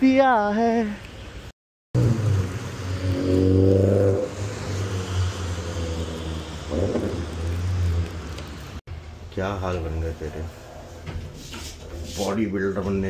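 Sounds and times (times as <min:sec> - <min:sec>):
buzzy motor hum: 0:02.0 - 0:08.8.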